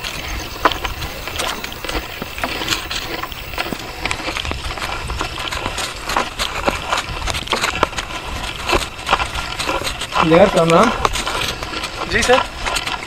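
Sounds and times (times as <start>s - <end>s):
footsteps through long grass: 0.0s - 13.0s.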